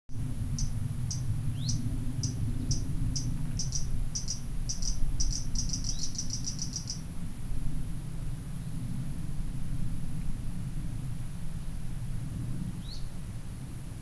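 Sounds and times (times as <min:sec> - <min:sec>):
low rumble: 0:00.1 - 0:14.0
high animal chirps: 0:00.6 - 0:07.0.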